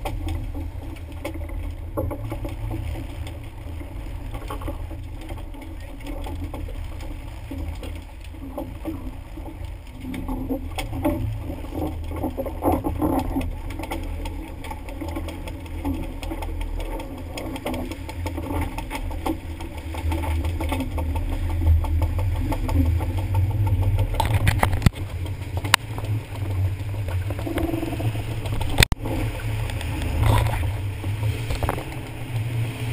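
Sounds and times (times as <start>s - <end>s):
boat engine rumble: 0.0s - 32.9s
water splashing against hull: 0.0s - 32.9s.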